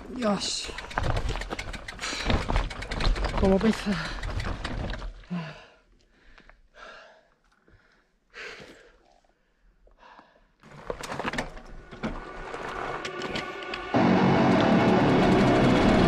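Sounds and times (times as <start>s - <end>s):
man breathing heavily: 5.2s - 10.6s.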